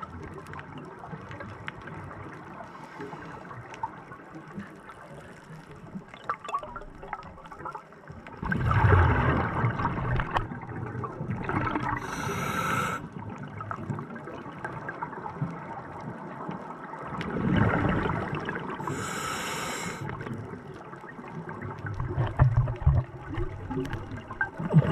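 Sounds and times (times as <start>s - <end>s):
bubbling exhalations underwater: 8.4s - 13.0s, 17.2s - 19.1s, 21.9s - 24.9s
regulator hiss: 12.0s - 13.0s, 18.9s - 20.1s.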